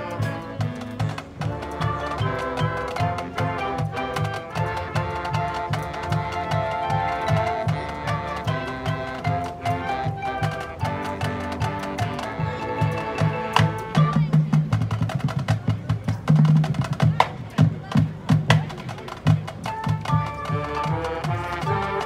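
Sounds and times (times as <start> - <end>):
wind instruments holding chords: 0.0 - 14.8, 19.2 - 22.0.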